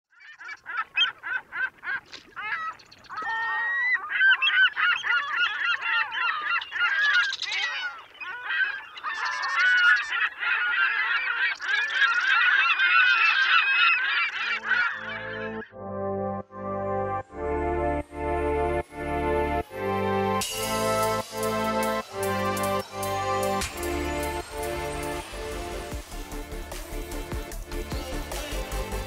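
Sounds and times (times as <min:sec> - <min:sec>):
flock of birds calling: 0:00.1 - 0:15.7.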